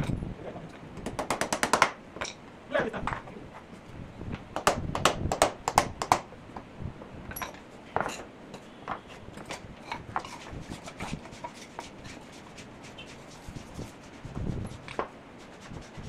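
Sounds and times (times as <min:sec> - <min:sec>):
wood scraping on concrete: 0:09.0 - 0:15.9.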